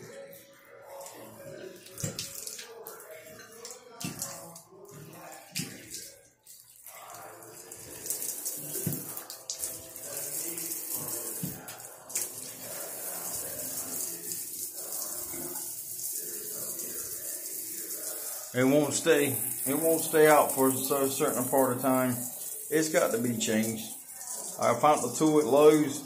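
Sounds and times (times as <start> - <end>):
water running in bathtub: 0.0 - 26.0
shower spray hissing: 8.0 - 26.0.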